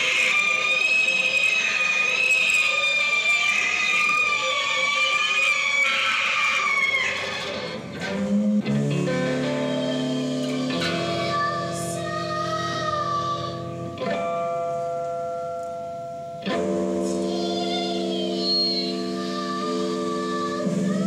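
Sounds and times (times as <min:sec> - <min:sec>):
electric guitar chords: 0:00.0 - 0:21.0
woman singing into microphone: 0:17.0 - 0:21.0.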